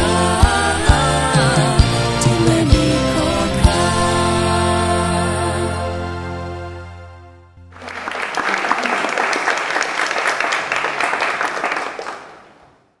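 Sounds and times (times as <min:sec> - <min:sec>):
live band held chord: 0:00.0 - 0:09.2
audience applauding: 0:07.7 - 0:12.8.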